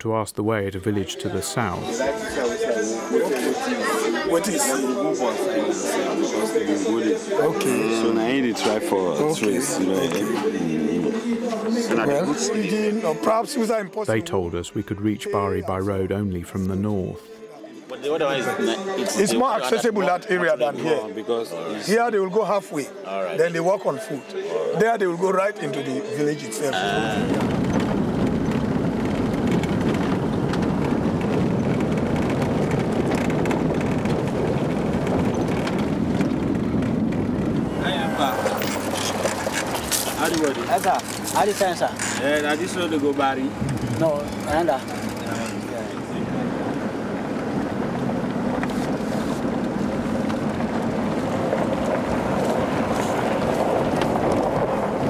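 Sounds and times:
car driving on dirt road: 0:27.1 - 0:55.0.

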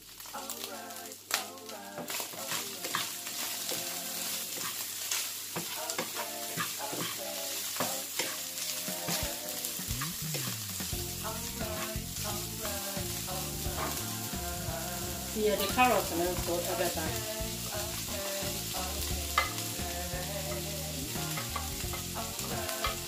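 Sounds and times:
meat and onion sizzling in a pan: 0:00.0 - 0:23.0
wooden spatula stirring: 0:02.0 - 0:14.1
background music: 0:05.8 - 0:23.0.

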